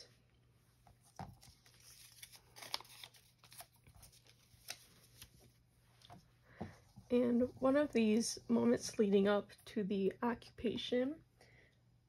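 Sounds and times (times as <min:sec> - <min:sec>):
paper labels rustling: 0:00.9 - 0:06.2.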